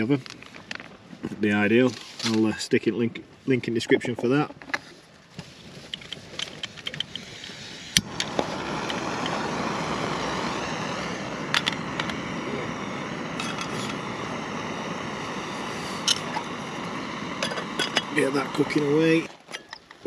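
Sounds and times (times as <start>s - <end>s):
gas flame hissing: 5.9s - 19.4s.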